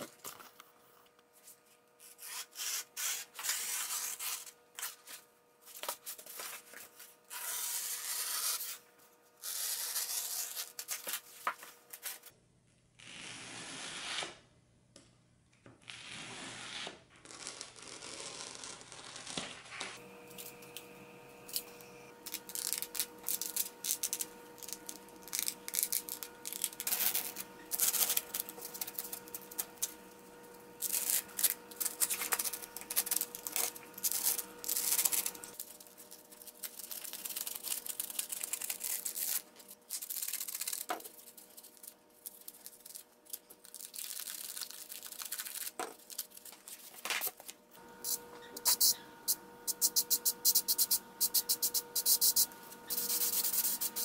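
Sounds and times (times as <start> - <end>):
foam pieces being torn: 22.2 - 29.9, 30.8 - 46.6.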